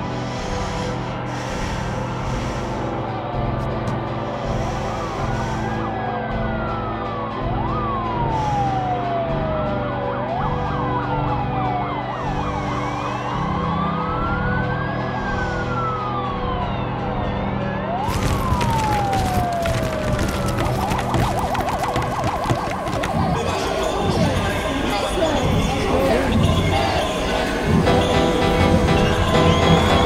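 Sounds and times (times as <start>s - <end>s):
emergency sirens wailing: 0.0s - 30.0s
dense crackling noise: 18.1s - 24.5s.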